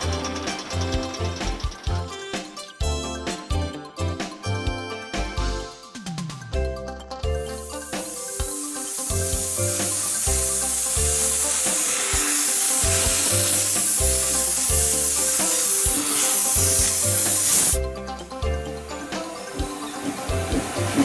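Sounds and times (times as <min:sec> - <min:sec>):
background music with bass line: 0:00.0 - 0:21.0
steam hissing from locomotive: 0:07.5 - 0:17.8.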